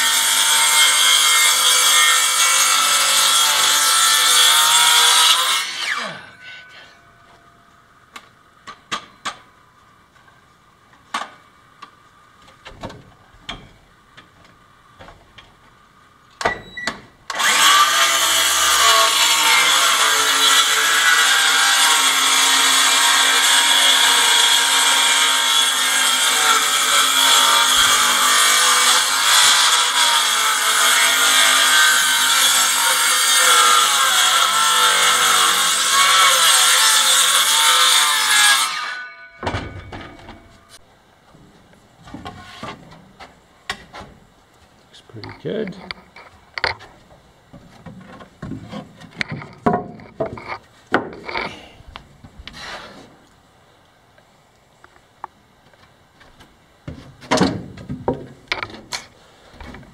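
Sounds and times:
circular saw cutting wood: 0.0 - 7.0, 17.3 - 39.1.

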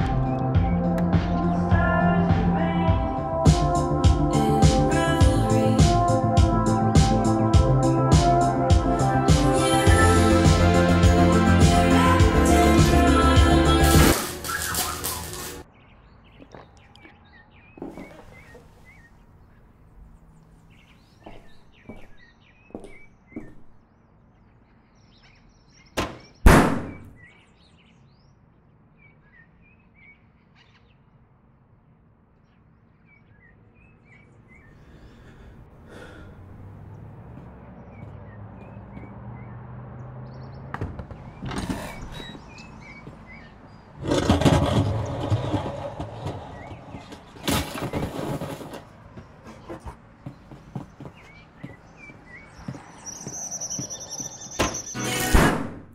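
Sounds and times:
small birds chirping: 14.4 - 26.5, 27.1 - 31.1, 32.4 - 44.0, 49.0 - 55.0
loud thuds: 26.0 - 27.2.

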